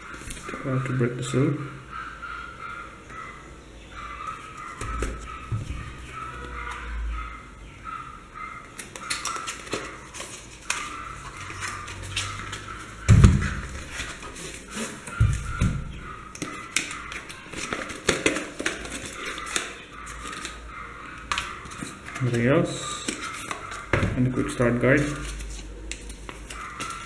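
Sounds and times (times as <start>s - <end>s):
box thump: 13.1s - 13.8s.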